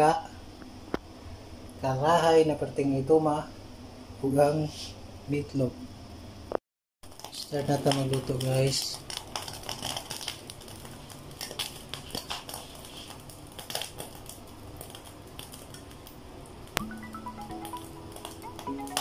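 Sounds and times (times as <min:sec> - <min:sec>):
fat crackling in a frying pan: 0:07.0 - 0:16.8
marimba-like music: 0:16.8 - 0:19.0.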